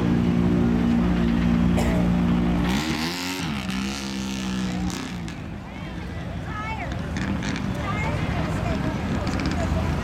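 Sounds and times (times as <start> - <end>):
truck engine revving: 0.0 - 5.6.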